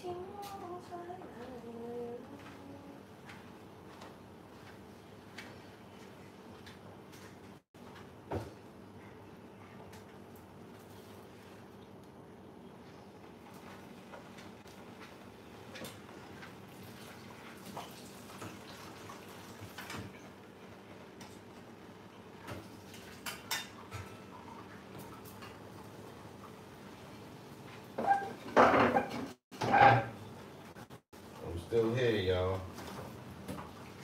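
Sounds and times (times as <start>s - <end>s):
pots and pans clinking: 22.5s - 24.6s, 28.0s - 30.2s.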